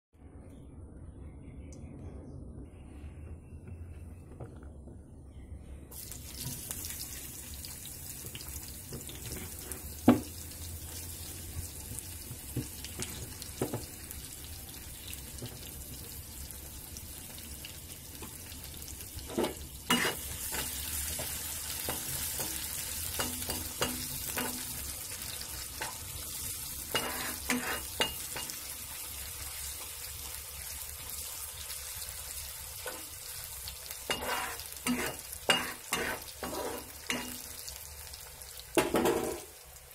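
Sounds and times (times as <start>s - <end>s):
onions sizzling in hot oil: 5.9s - 39.9s
utensil knocking and scraping pan: 19.3s - 22.6s.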